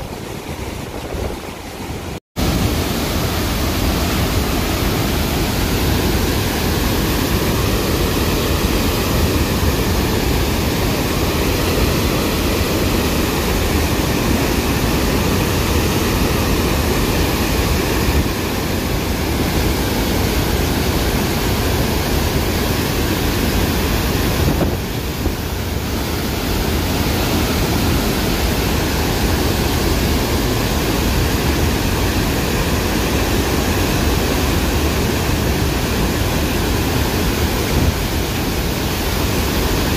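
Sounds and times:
water rushing through spillway: 0.0s - 39.9s.

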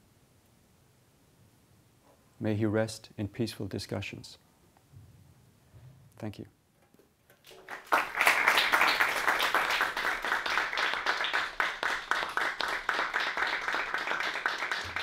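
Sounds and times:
small audience applauding: 7.4s - 15.0s.

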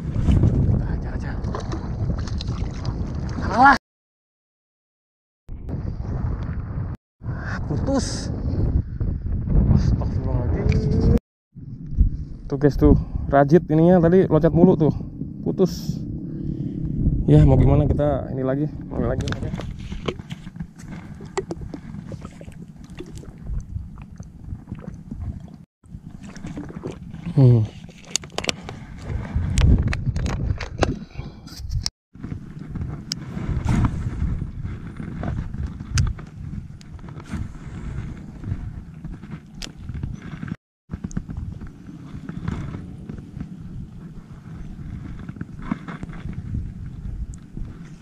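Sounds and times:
wind rumble on microphone: 0.0s - 3.8s, 5.5s - 48.0s.

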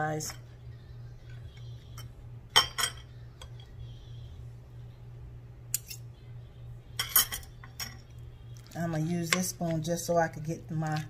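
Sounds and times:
steady low hum: 0.0s - 11.0s
metal spoons clinking on glass bowl: 2.6s - 3.1s, 5.7s - 6.0s, 7.0s - 8.0s.

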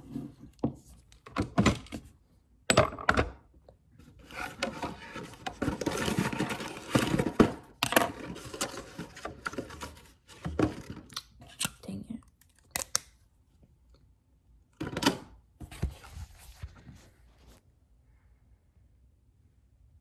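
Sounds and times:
close rustling and clattering: 4.2s - 11.0s.

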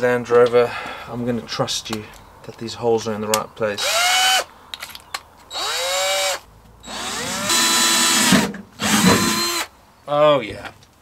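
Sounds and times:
cordless drill drilling metal: 3.8s - 4.5s, 5.5s - 9.7s.

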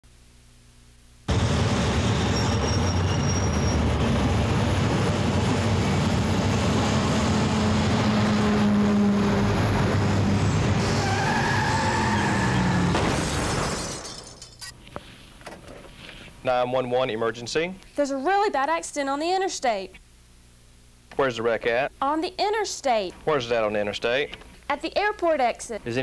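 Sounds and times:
passing vehicle whine: 1.3s - 11.1s
heavy traffic passing: 1.3s - 13.1s.

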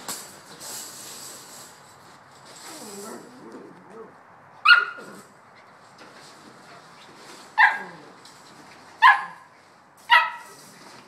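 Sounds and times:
puppy barking: 4.6s - 5.2s, 7.6s - 8.0s, 9.0s - 9.5s, 10.1s - 10.6s.

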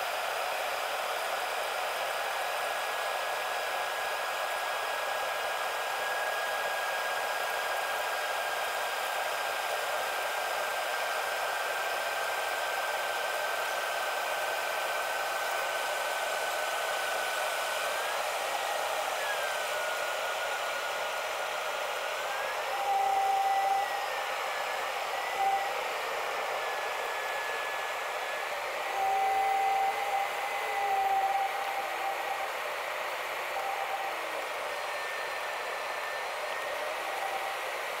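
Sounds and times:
high whining engine tone: 14.9s - 38.0s.

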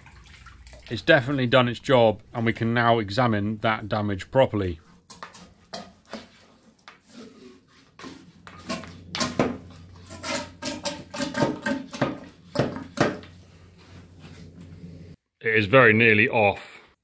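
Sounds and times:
liquid sloshing and dripping: 0.0s - 1.2s.

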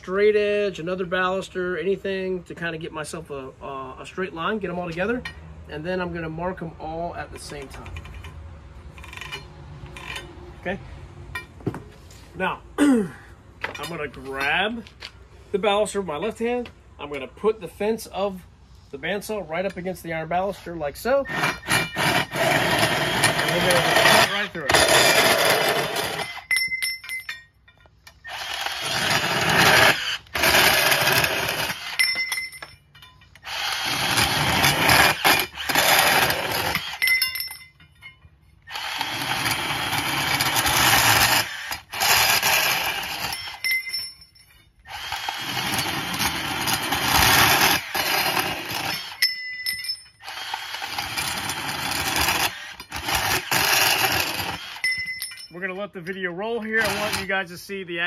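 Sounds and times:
bandsaw cutting metal: 21.2s - 26.6s, 28.1s - 32.4s, 33.3s - 37.6s, 38.6s - 44.0s, 44.8s - 55.4s, 56.5s - 57.6s.

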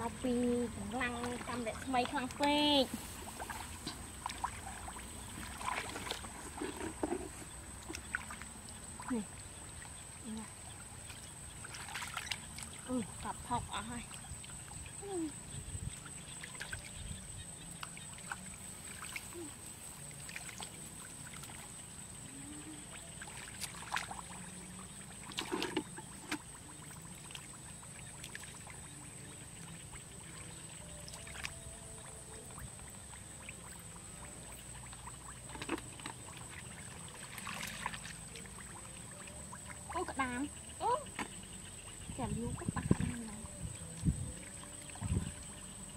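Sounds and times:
hands splashing in muddy water: 3.0s - 7.0s, 35.6s - 38.4s.

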